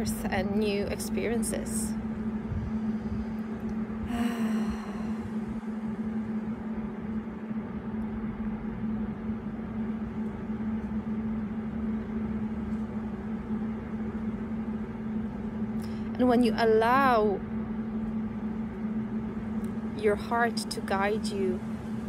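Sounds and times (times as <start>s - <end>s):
low rumble: 0.0s - 22.0s
steady low hum: 0.0s - 22.0s.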